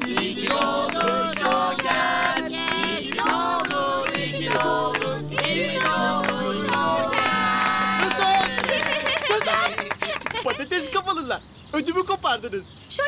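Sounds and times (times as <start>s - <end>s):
group singing: 0.0s - 9.0s
hand claps: 0.0s - 10.6s.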